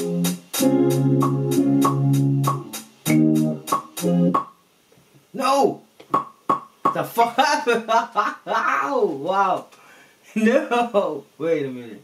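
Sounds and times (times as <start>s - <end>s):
hi-hat ticking: 0.0s - 4.5s
sampled chords: 0.0s - 4.5s.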